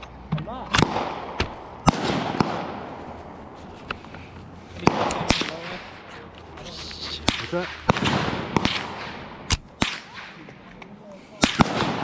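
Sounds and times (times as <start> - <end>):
rifle shots with echo: 0.7 - 2.9, 4.8 - 5.9, 7.3 - 10.6, 11.4 - 12.0.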